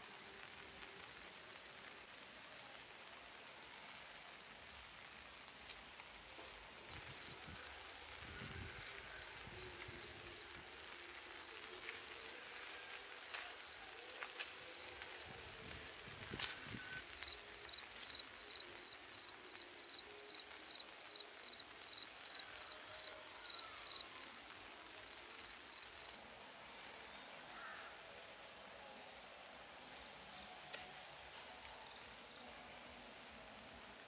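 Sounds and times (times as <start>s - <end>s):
outdoor background hiss: 0.0s - 34.0s.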